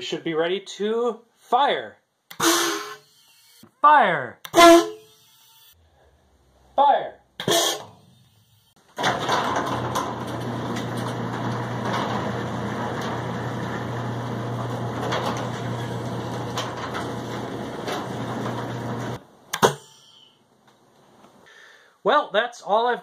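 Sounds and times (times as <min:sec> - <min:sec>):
garage door opener motor hum: 0:08.0 - 0:19.2
garage door rattling: 0:08.8 - 0:19.2.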